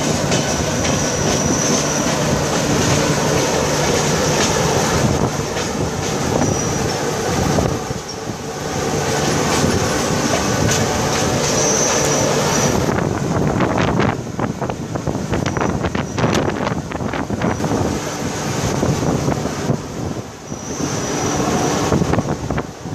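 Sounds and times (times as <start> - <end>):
wheels clattering over rail joints: 0.0 - 8.3, 8.9 - 13.0
rushing air: 0.0 - 22.9
train wheels rumbling on rails: 0.0 - 22.9.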